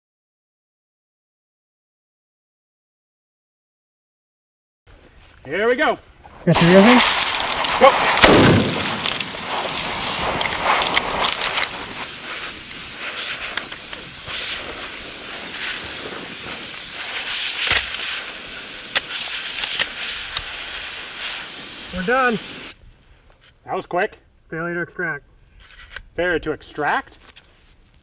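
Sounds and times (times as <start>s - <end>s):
compressed air hose hissing: 6.5s - 22.8s.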